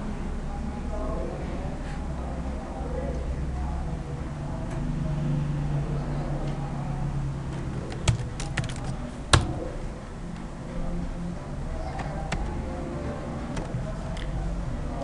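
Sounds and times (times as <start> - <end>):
steady low hum: 0.0 - 15.0
keyboard keys clicking: 7.8 - 9.6, 12.0 - 12.6, 13.5 - 14.3.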